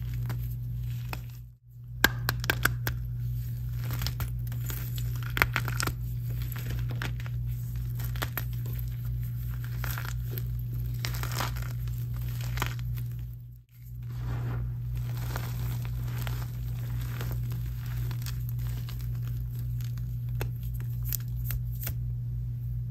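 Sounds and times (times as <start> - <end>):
steady low hum: 0.0 - 22.9
hands crushing chalk: 2.0 - 13.3, 14.9 - 22.0.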